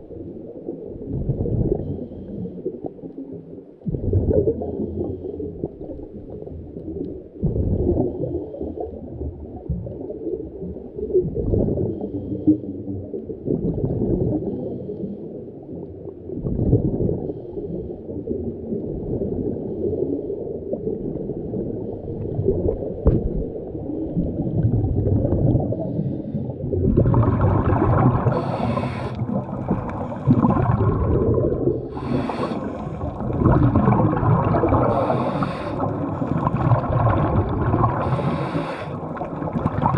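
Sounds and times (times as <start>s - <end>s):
muffled underwater noise: 13.9s - 39.9s
short sharp hissing bursts: 28.4s - 29.2s, 32.0s - 32.9s, 35.0s - 35.8s, 38.1s - 39.0s.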